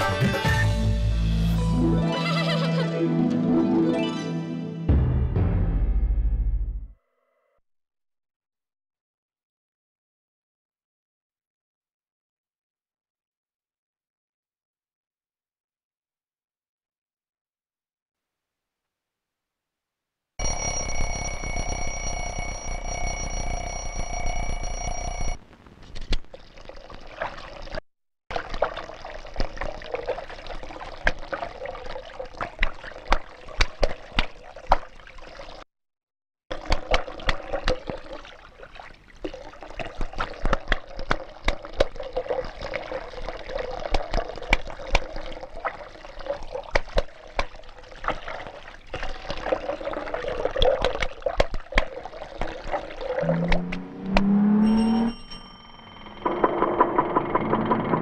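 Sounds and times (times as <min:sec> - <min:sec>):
alarm ringing: 0:20.4 - 0:25.4, 0:53.2 - 0:58.0
water trickling and splashing: 0:26.2 - 0:35.6, 0:36.5 - 0:54.0.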